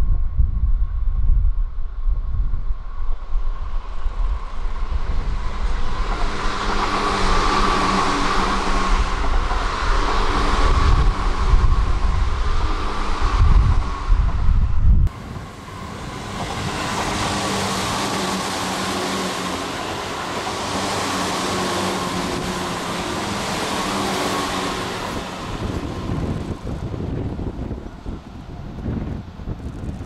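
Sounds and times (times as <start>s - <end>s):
wind buffeting microphone: 0.0s - 30.0s
electric train passing: 2.8s - 30.0s.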